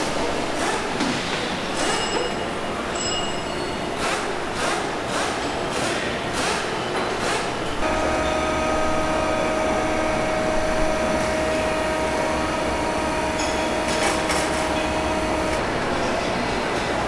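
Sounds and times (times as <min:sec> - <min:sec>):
rhythmic machine hissing: 0:07.2 - 0:15.6
low machinery hum: 0:07.6 - 0:17.0
steady machine whine: 0:07.6 - 0:17.0.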